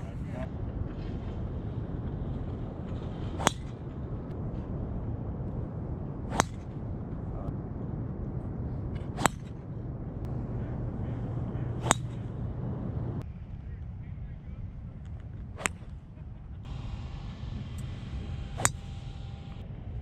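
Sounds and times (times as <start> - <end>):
wind noise on microphone: 0.0 - 20.0
golf club striking ball: 3.4 - 3.8, 6.3 - 6.8, 9.2 - 9.6, 11.0 - 12.5, 18.5 - 19.2.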